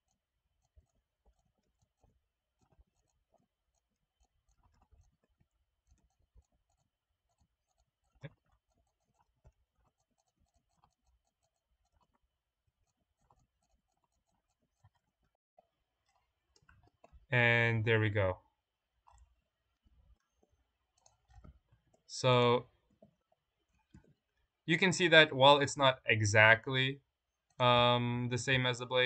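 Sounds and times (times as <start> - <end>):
computer mouse clicks: 21.0 - 22.0.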